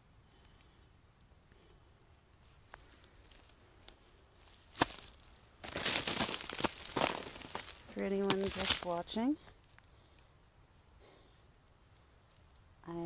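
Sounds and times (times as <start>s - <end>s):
footsteps in dry leaves: 2.4s - 9.8s.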